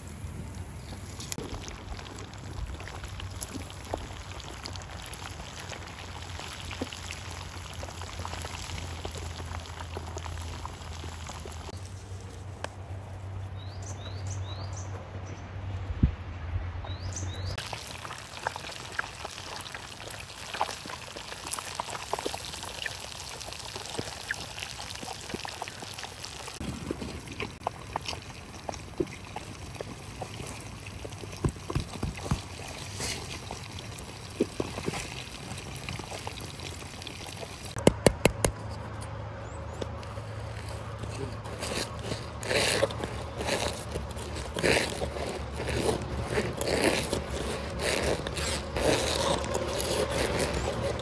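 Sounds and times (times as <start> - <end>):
wood fire crackling: 0.0 - 11.9, 17.6 - 29.0, 39.9 - 51.0
liquid pouring: 1.4 - 11.8, 17.6 - 26.7.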